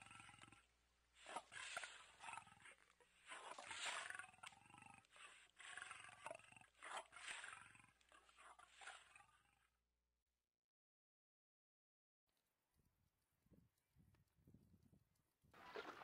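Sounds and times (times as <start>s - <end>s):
big cat roaring and grunting: 0.0s - 9.7s.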